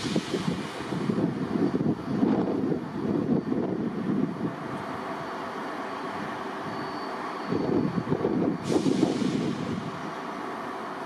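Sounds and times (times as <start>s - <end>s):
sudden hiss: 0.0s - 1.2s, 8.6s - 10.0s
diesel trains rumbling: 0.0s - 11.0s.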